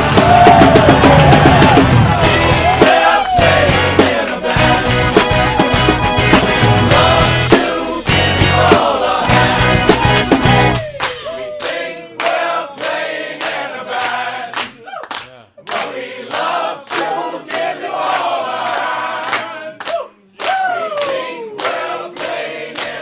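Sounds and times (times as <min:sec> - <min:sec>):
group chanting and singing: 0:00.0 - 0:05.9, 0:06.9 - 0:15.0, 0:15.6 - 0:23.0
steady percussive beat: 0:00.0 - 0:11.3.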